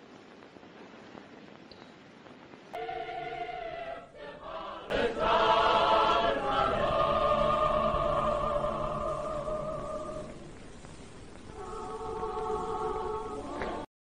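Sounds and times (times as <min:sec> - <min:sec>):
faint hiss: 0:00.0 - 0:13.9
choir singing held chords: 0:02.8 - 0:13.9.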